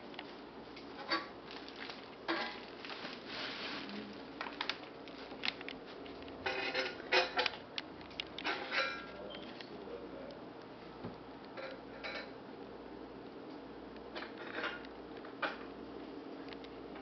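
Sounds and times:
tissue paper and plastic crinkling: 1.3 - 9.7.

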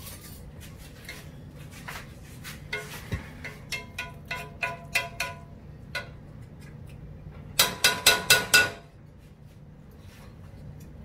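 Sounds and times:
metal spoon clinking on skillet: 3.4 - 6.2.

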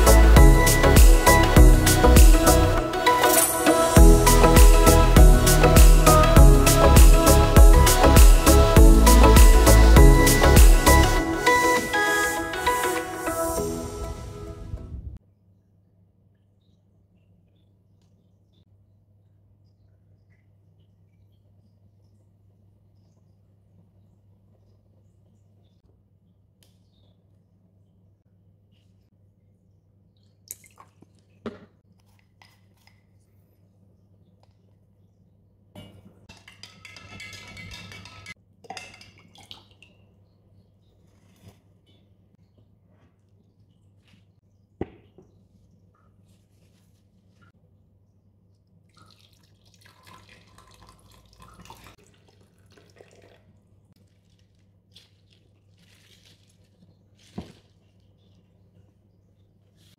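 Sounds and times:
spoon stirring in glass jug: 36.3 - 39.4
water pouring and splashing: 38.7 - 40.1, 48.9 - 58.4.

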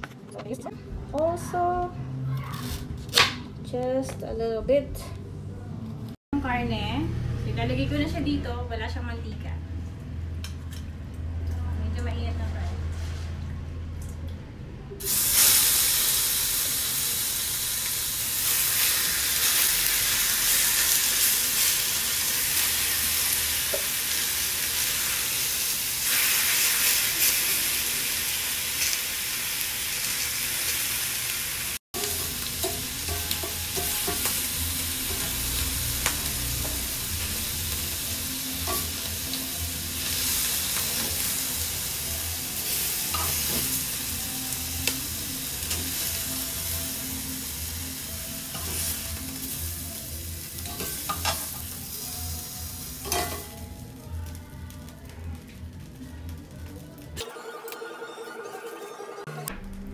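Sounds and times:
meat sizzling in skillet: 15.1 - 54.4.

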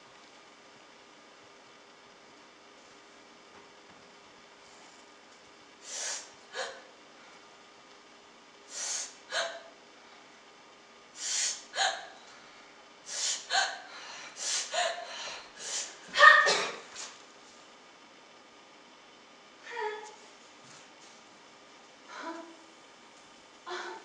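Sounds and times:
person gasping breaths: 13.1 - 16.0.

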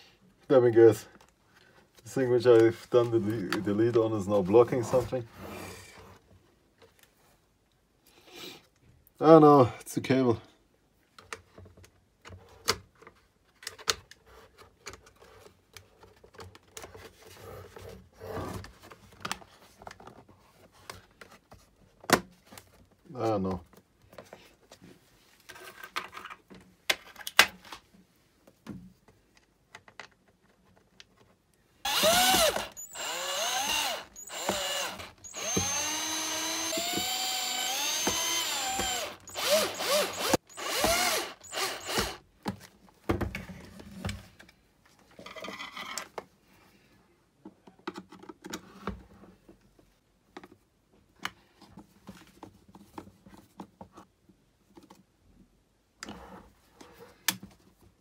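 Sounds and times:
cordless drill motor whirring: 31.9 - 42.2.

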